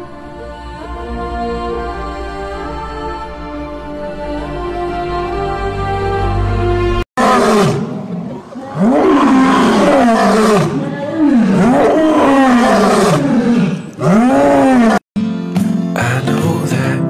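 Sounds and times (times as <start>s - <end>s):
soft music: 0.0s - 7.0s, 15.2s - 17.0s
lion roaring: 7.2s - 15.0s.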